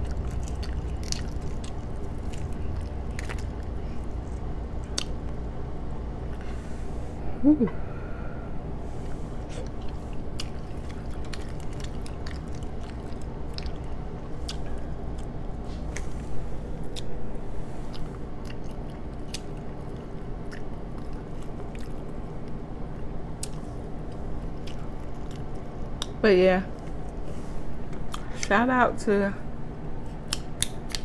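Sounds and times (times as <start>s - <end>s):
wet chewing: 0.0s - 5.3s, 9.5s - 17.2s, 17.9s - 27.2s
steady low hum: 0.0s - 31.0s
crab shell clicks and crackles: 10.4s - 14.0s.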